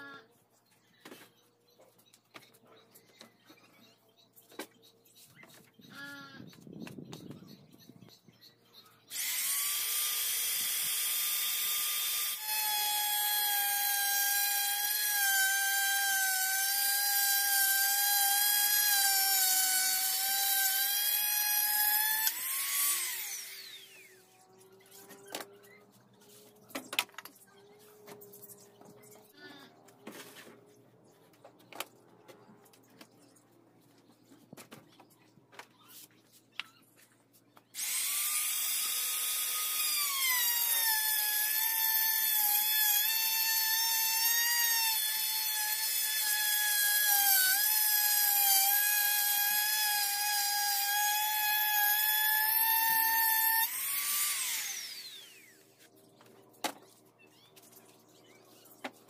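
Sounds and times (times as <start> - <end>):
router whining cutting wood: 9.1 - 25.8, 37.8 - 55.7.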